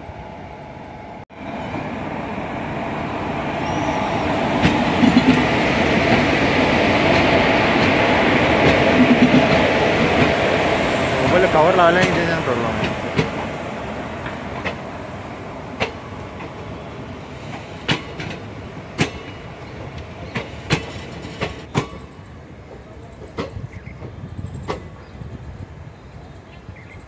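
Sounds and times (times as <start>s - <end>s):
train coaches rumbling past: 0.0s - 27.0s
train wheel clicks: 11.3s - 13.4s, 17.5s - 22.1s.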